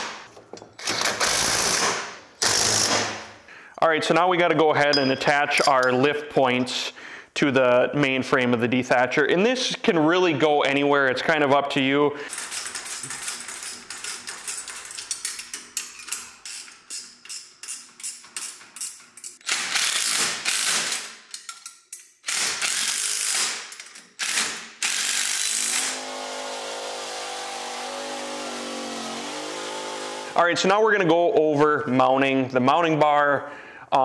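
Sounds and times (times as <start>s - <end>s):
ratchet wrench clicking: 12.3s - 25.8s.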